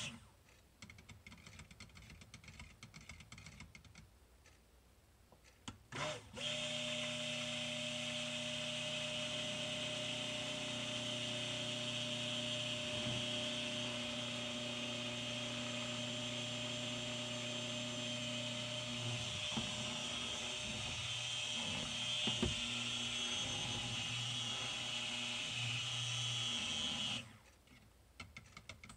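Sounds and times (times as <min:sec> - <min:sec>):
stick blender motor whine: 0:05.9 - 0:27.4.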